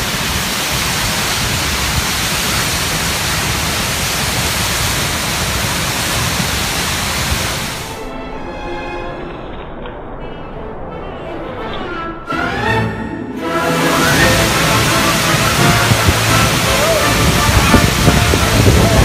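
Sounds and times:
waterfall rushing: 0:00.0 - 0:08.0, 0:13.4 - 0:19.0
background music: 0:07.9 - 0:19.0.

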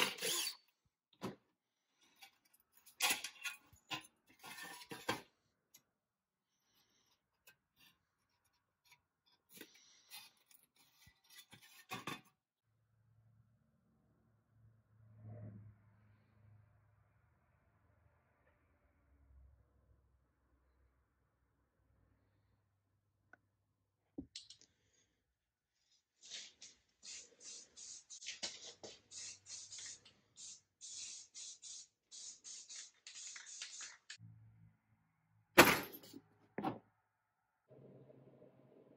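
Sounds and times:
aerosol spray can hissing: 0:28.9 - 0:34.2.

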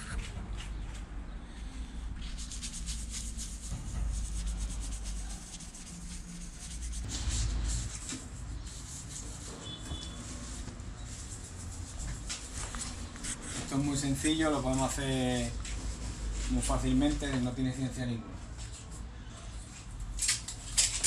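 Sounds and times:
cloth wiping painted surface: 0:02.2 - 0:16.7.

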